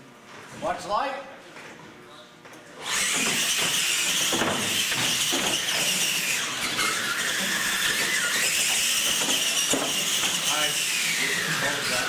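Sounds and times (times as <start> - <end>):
electric motors whining: 2.8 - 12.0.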